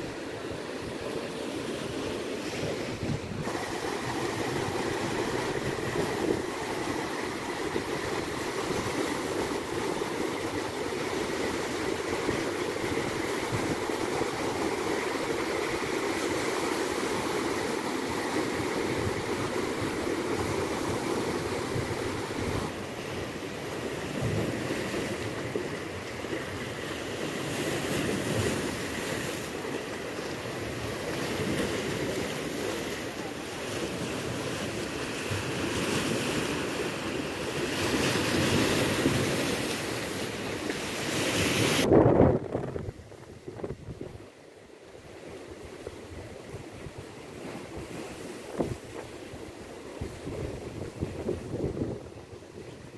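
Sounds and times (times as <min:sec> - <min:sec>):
wave breaking: 0:00.0 - 0:44.2, 0:47.3 - 0:52.9
small waves washing ashore: 0:00.0 - 0:52.9
wind on microphone: 0:02.0 - 0:25.8, 0:41.0 - 0:44.3, 0:45.6 - 0:52.9.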